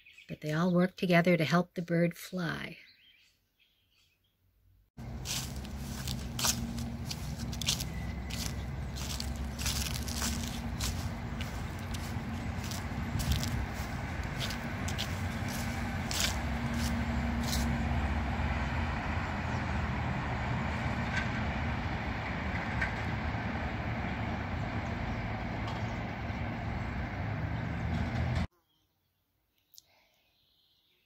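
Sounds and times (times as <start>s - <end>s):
low traffic rumble: 5.0s - 28.5s.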